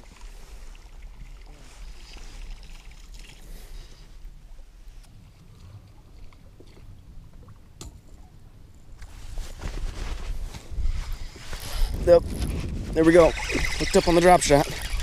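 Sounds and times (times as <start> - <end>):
water lapping against boat hull: 4.9 - 8.4
wind on microphone: 9.2 - 15.0.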